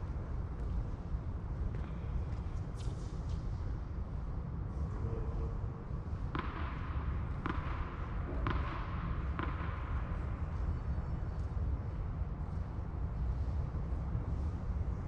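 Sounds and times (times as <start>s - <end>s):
racket hitting tennis ball: 6.3s - 9.9s.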